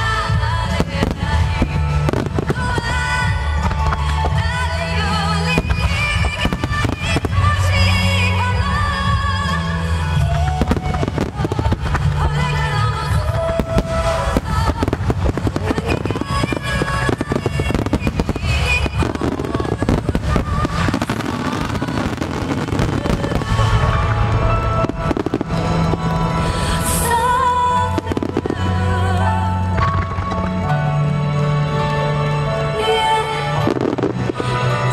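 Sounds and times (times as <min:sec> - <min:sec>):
fireworks bursting and crackling: 0:00.0 - 0:30.7, 0:33.4 - 0:34.9.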